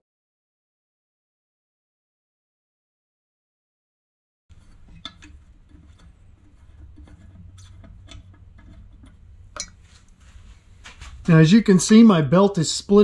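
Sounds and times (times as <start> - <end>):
low steady hum: 4.5 - 13.0
metal cover clicks and knocks: 4.8 - 9.8.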